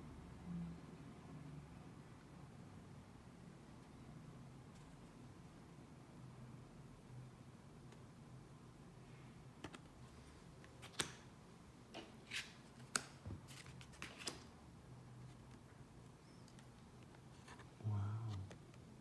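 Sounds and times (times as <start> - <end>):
low room hum: 0.0 - 19.0
cards clicking and swishing: 10.7 - 11.3, 12.2 - 14.5.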